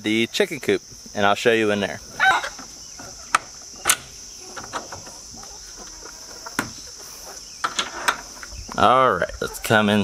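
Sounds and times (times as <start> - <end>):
crickets chirping: 0.0 - 10.0
latch clicks and wooden door knocks: 3.0 - 5.2.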